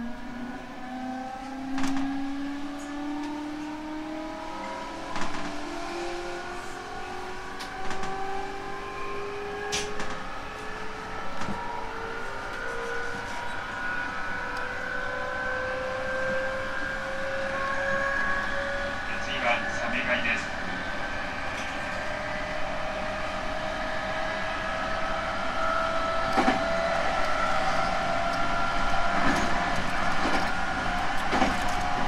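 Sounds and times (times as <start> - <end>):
rumbling track noise: 0.0 - 8.6, 16.2 - 32.0.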